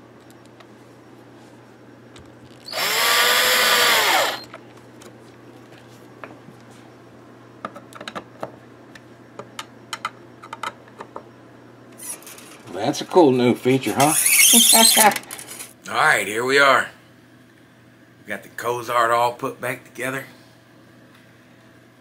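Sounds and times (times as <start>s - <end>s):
power drill motor whirring: 2.6s - 4.5s.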